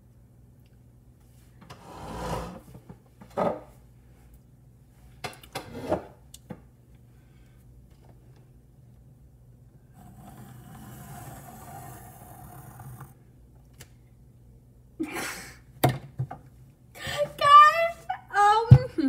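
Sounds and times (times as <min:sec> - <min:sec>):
faint room noise: 0:00.0 - 0:19.0
girl giggling: 0:15.0 - 0:15.7.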